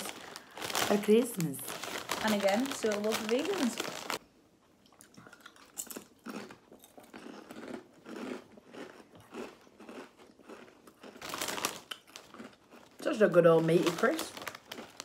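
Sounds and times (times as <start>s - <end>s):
crisp packet crackling: 0.0s - 4.2s, 10.5s - 15.0s
crisps crunching: 0.0s - 4.2s, 5.0s - 15.0s
chewing: 4.8s - 13.0s.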